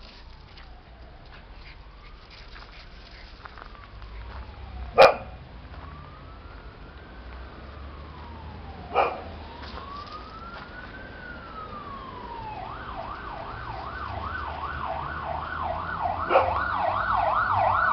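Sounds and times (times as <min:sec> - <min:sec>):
emergency vehicle siren: 0:00.0 - 0:17.9
dog barking: 0:05.0 - 0:05.4, 0:08.9 - 0:09.3, 0:16.2 - 0:16.6.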